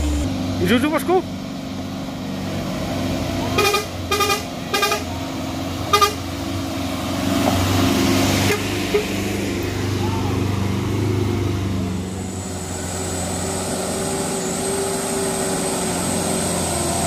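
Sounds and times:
truck diesel engine running: 0.0s - 17.0s
horn tooting: 3.5s - 6.3s, 8.4s - 9.2s.

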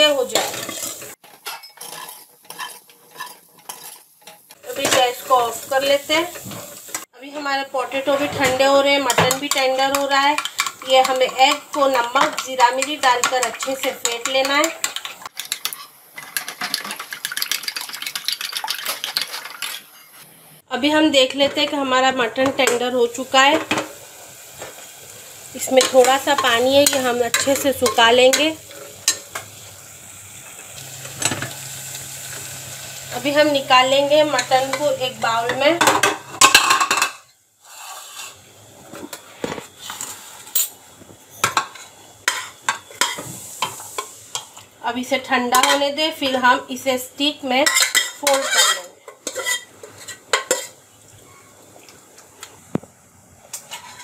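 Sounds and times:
pan and metal spoon clinking: 0.3s - 5.6s, 25.7s - 29.5s, 40.5s - 40.8s, 47.6s - 50.8s
fork whisking eggs in a dish: 1.8s - 4.4s.

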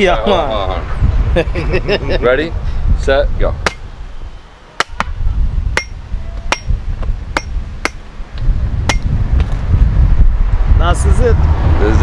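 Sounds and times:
machete chopping coconut: 3.7s - 3.9s, 4.8s - 5.1s, 5.8s - 6.8s, 7.4s - 8.0s
low rumble: 5.2s - 12.0s.

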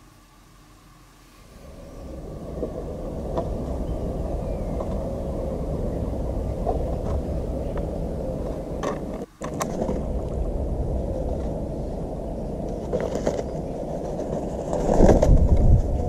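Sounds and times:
low outdoor rumble: 0.0s - 16.0s
knocks and rustles: 12.6s - 16.0s.

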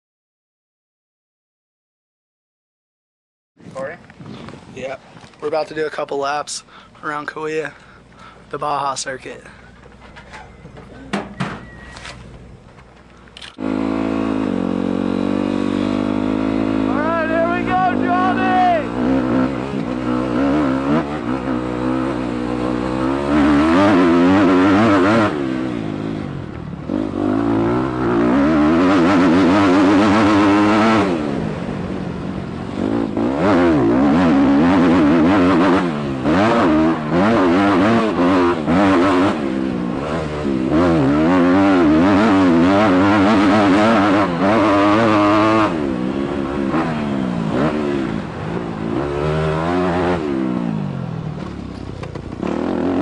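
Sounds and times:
motocross bike engine revving: 13.5s - 53.0s.

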